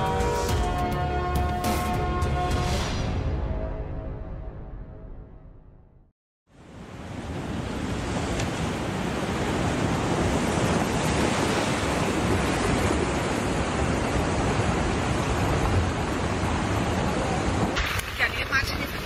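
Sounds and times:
turbulent water rushing: 6.7 - 19.0.

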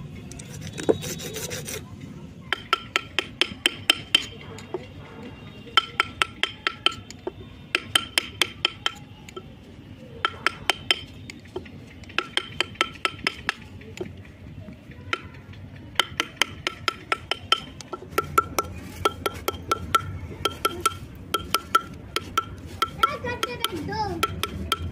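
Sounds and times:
file rasping on metal: 0.5 - 1.8
hammer tapping chisel: 2.5 - 4.8, 5.8 - 9.5, 10.2 - 14.2, 15.1 - 24.9.

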